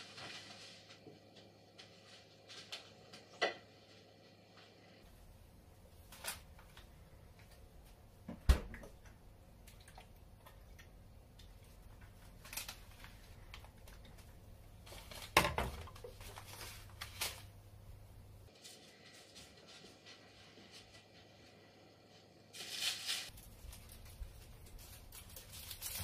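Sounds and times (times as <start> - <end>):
kitchen items clattering: 11.8 - 17.2.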